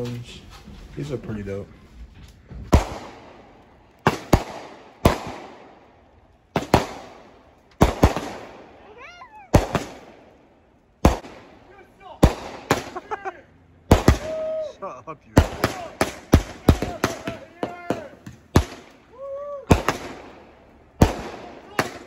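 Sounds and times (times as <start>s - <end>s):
firework bangs with echo: 2.6s - 5.9s, 6.5s - 8.8s, 9.5s - 10.3s, 11.0s - 13.1s, 13.8s - 14.6s, 15.3s - 22.0s.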